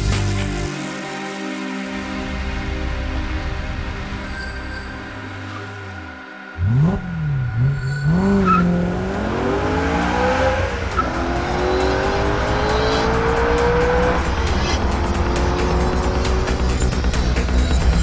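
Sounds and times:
background music: 0:00.0 - 0:18.0
car engine revving: 0:06.6 - 0:17.9.

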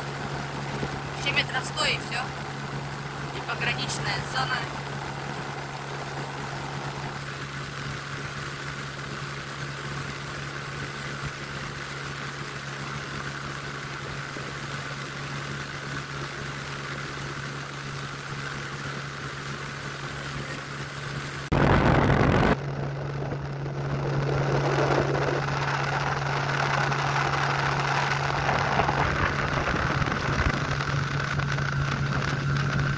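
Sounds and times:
outboard motor running: 0:00.0 - 0:32.9
sudden loud rush of noise: 0:21.5 - 0:31.5.

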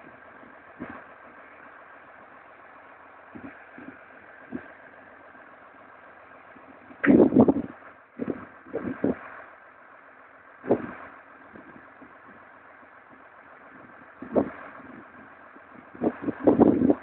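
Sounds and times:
faint engine hum: 0:00.0 - 0:17.0
wind buffeting microphone: 0:03.3 - 0:04.9, 0:06.6 - 0:09.3, 0:10.6 - 0:12.5, 0:13.8 - 0:17.0.

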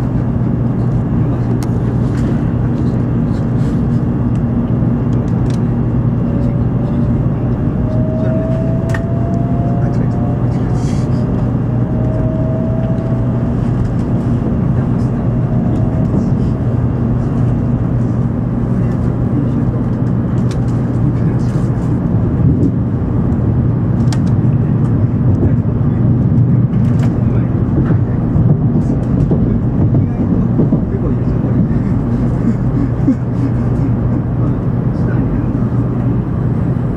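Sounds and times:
train running rumble and hum: 0:00.0 - 0:36.9.

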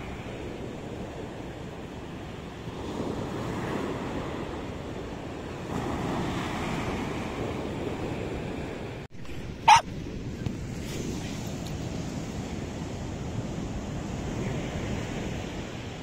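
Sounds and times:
waves breaking on beach: 0:00.0 - 0:16.0
small dog barking: 0:09.6 - 0:09.9.

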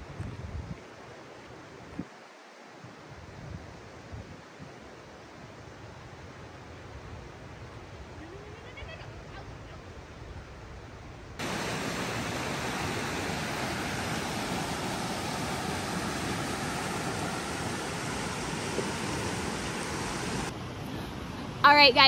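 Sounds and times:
river rushing: 0:11.4 - 0:21.9.

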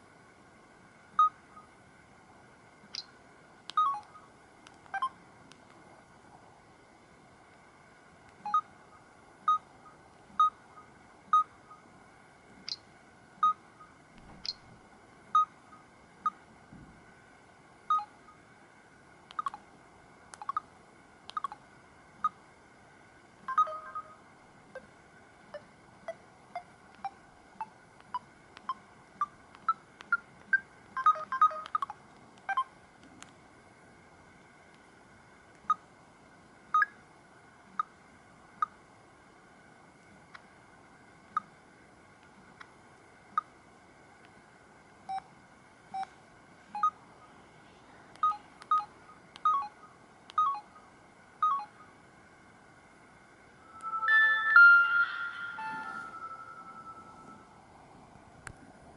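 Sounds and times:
faint high whine: 0:00.0 - 0:58.9
touchscreen tap beeps: 0:03.7 - 0:04.1, 0:31.0 - 0:32.6.

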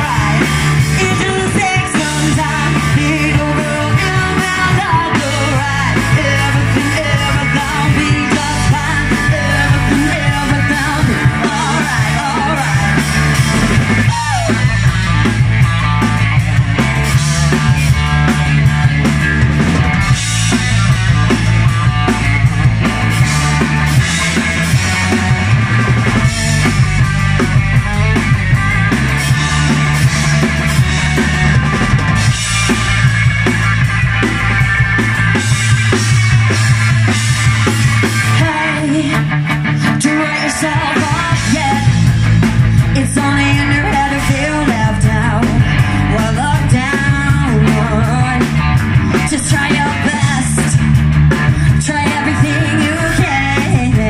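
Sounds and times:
woman singing into microphone: 0:00.0 - 0:13.1, 0:38.3 - 0:42.2, 0:42.8 - 0:50.8, 0:51.5 - 0:54.0
bass guitar: 0:00.0 - 0:54.0
drum kit: 0:00.0 - 0:54.0
electric guitar: 0:00.0 - 0:54.0.

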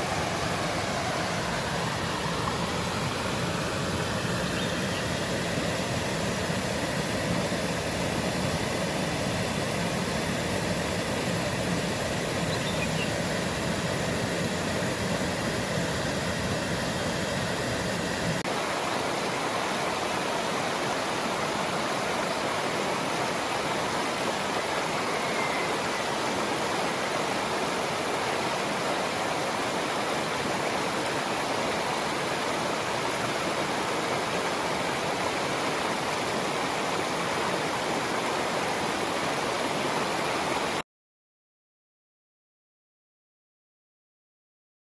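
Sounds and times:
water rushing over rocks: 0:00.0 - 0:40.8
small waterfall pouring into pool: 0:18.4 - 0:40.8.

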